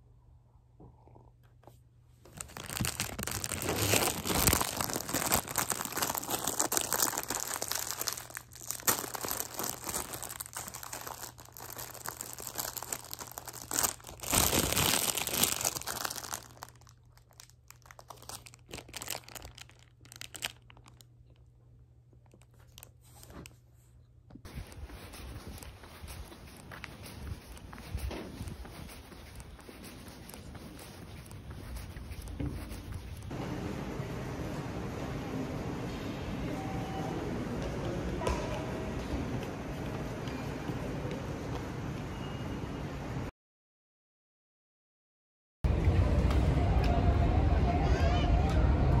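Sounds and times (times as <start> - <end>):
wrapping crinkling: 2.2 - 21.5, 22.1 - 23.6, 24.5 - 33.3.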